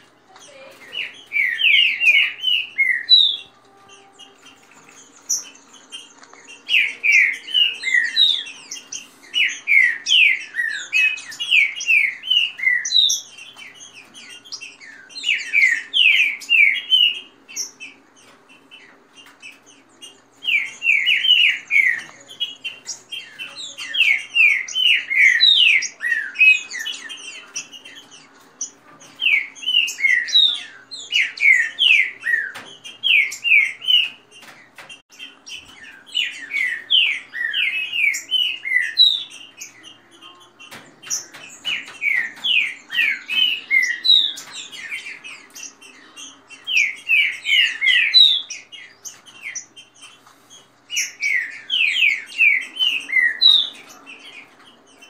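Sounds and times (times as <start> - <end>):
birds singing whistled notes: 0.0 - 55.0.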